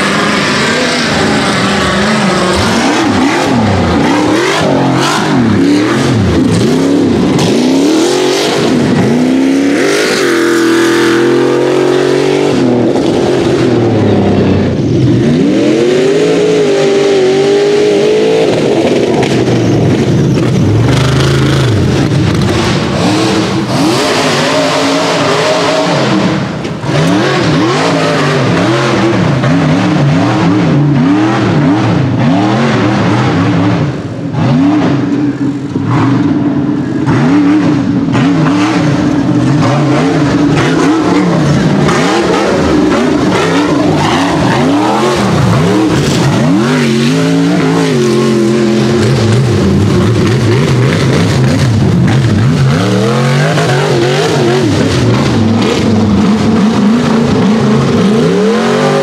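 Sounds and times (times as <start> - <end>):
buggy engines revving hard: 0.0 - 59.0.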